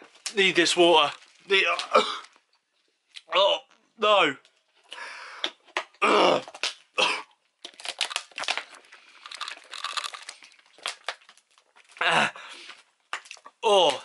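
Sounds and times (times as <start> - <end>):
crinkling and crackling: 0.0 - 4.9, 5.6 - 14.0.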